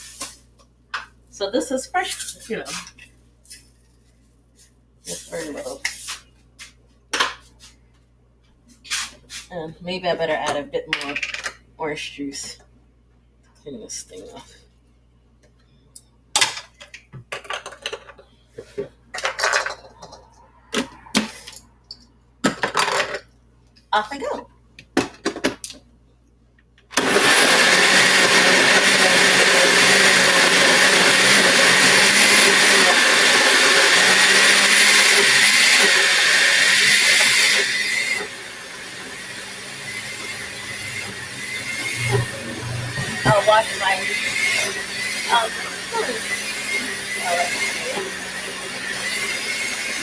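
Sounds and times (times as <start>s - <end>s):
blender whirring: 26.9s - 50.0s.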